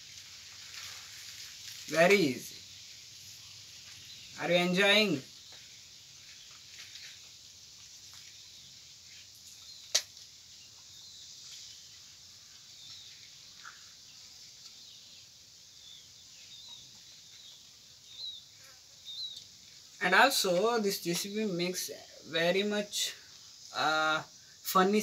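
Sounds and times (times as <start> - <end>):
steady hiss: 0.0 - 25.0
faint bird chirps: 8.0 - 25.0.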